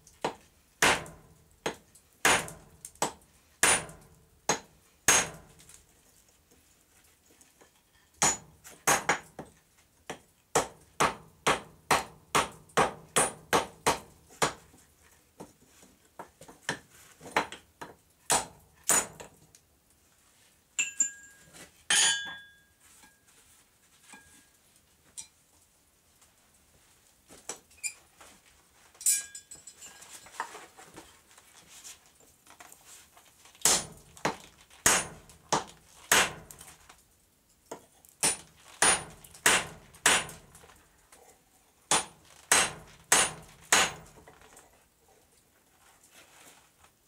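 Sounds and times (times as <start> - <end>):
ringing metallic clanks: 20.8 - 22.6.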